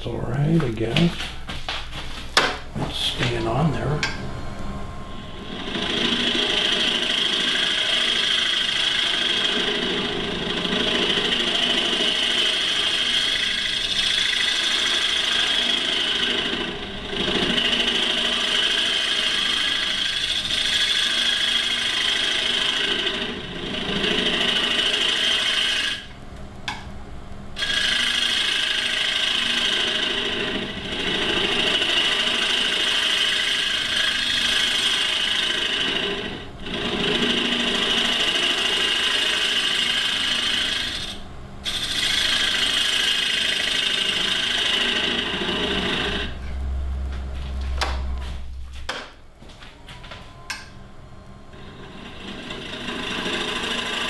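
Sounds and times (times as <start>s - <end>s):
lathe tool scraping wood: 5.1s - 26.2s, 27.6s - 46.5s, 51.5s - 54.0s.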